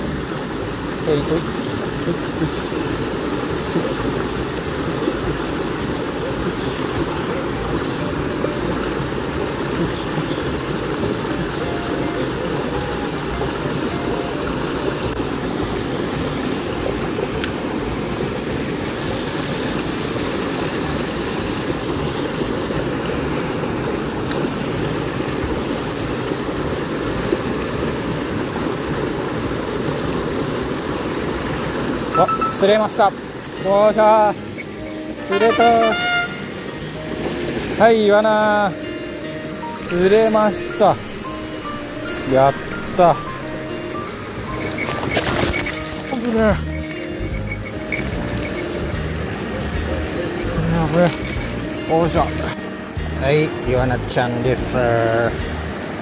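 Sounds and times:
water rushing into a pool: 0.0s - 38.8s.

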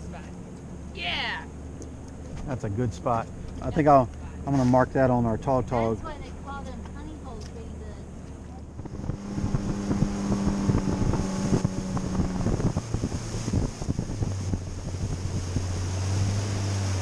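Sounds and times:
outboard motor running: 0.0s - 17.0s
wind buffeting microphone: 8.6s - 17.0s.

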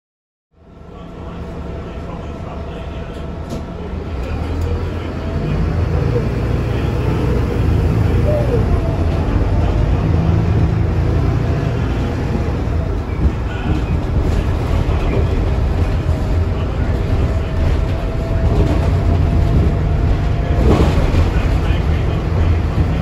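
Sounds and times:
bus diesel engine rumble: 0.6s - 23.0s
road noise: 0.6s - 23.0s.

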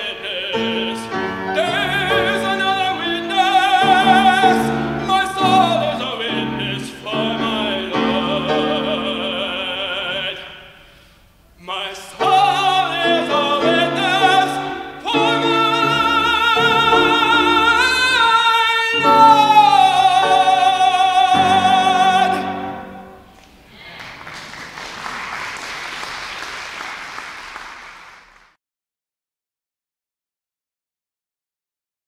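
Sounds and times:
piano: 0.0s - 11.0s, 11.6s - 23.7s
tenor singing: 0.0s - 25.1s.

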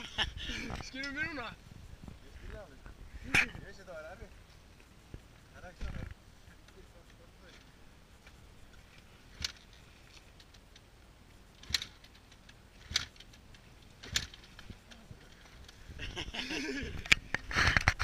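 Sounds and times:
motorbike kickstarter clunks: 14.0s - 14.7s.

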